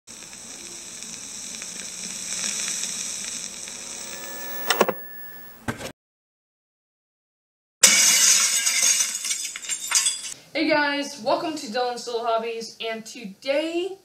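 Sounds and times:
steady high hiss: 0.1 - 5.6.

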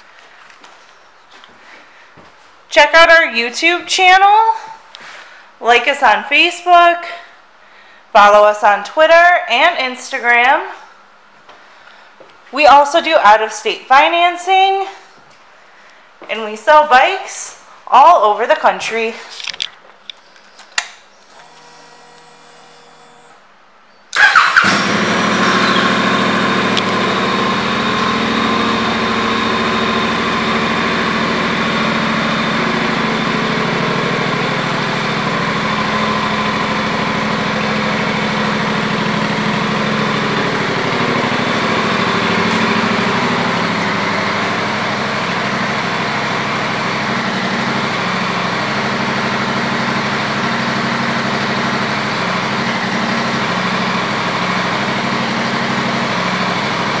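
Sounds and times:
motorcycle engine idling: 24.2 - 57.0.

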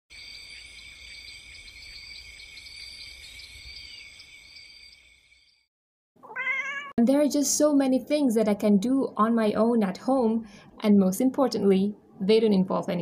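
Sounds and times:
crickets chirring: 0.1 - 5.7.

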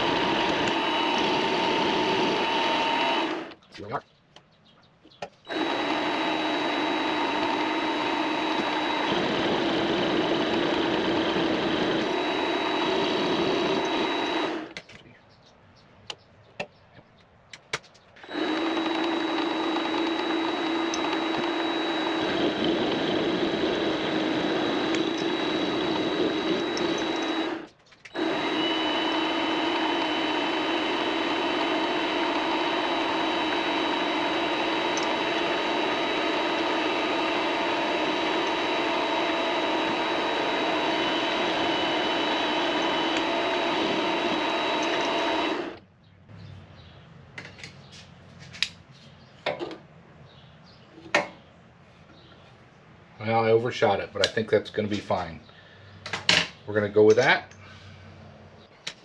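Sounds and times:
lathe motor whine: 0.0 - 3.6, 5.5 - 14.8, 18.2 - 45.8.

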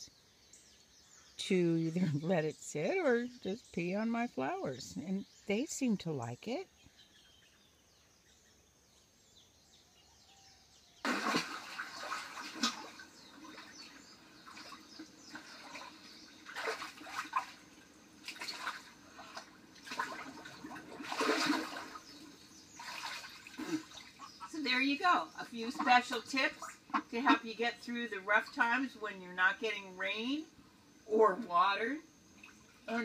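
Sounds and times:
water splashing in a pool: 11.0 - 24.5, 32.3 - 33.0.

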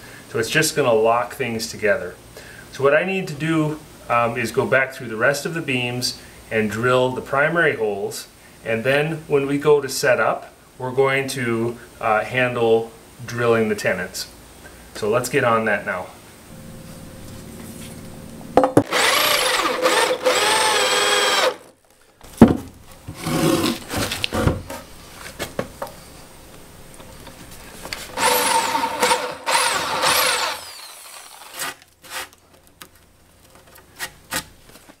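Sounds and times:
electric drill motor whine: 18.8 - 21.7, 28.2 - 31.6
knocks and clatter of wood: 22.2 - 23.2.

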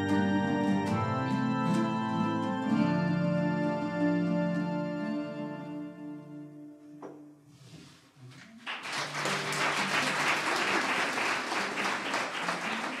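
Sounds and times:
audience applauding: 8.4 - 13.0.

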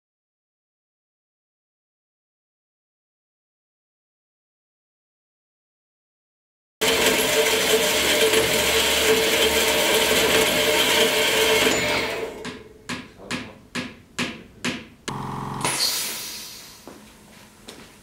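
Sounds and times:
power saw cutting steel: 6.8 - 12.4, 15.1 - 16.8
sharp knocks: 12.4 - 15.2.

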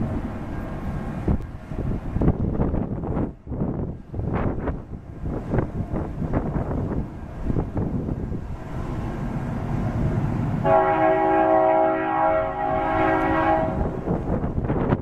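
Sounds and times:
wind noise: 0.0 - 10.7, 12.3 - 15.0
locomotive air horn chord: 10.6 - 13.9.

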